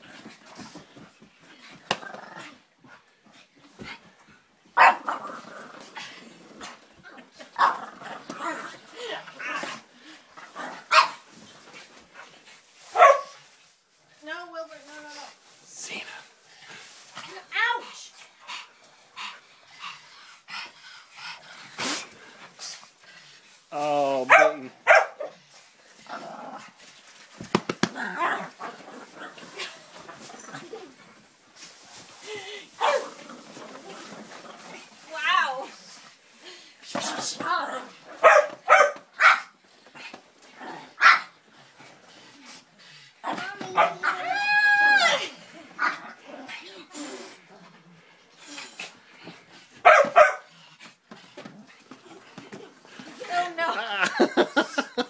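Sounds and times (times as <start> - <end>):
dog growling: 1.9 - 2.6, 5.0 - 9.8, 26.0 - 26.8
small dog barking: 4.8 - 5.1, 10.9 - 11.2, 13.0 - 13.3, 24.3 - 25.3, 38.2 - 39.5, 41.0 - 41.3, 49.8 - 50.5
small dog growling and barking: 4.8 - 11.2, 27.9 - 30.8, 32.8 - 34.9, 40.5 - 41.4.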